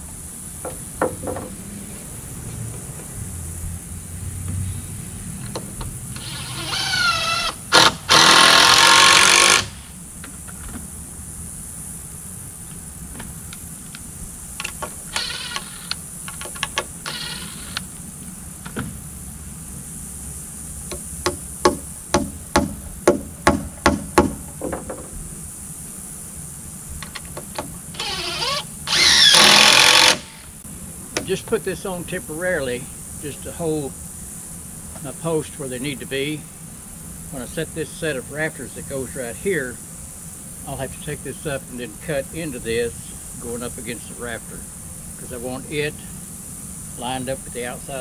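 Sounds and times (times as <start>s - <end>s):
sharp knocks: 0.6s - 1.6s, 20.9s - 25.2s
cordless drill whining: 6.1s - 9.8s, 15.1s - 16.0s, 17.0s - 17.8s, 27.9s - 30.5s.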